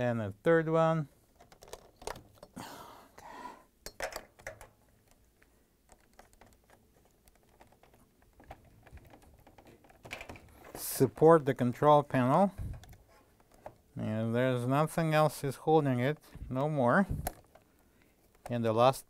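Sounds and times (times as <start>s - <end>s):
wire harness rustling: 4.4s - 14.0s.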